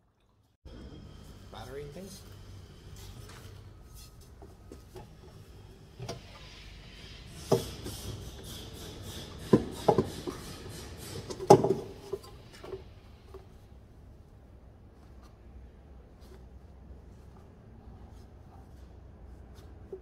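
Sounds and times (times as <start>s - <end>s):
rubbing and rustling: 13.4s - 20.0s.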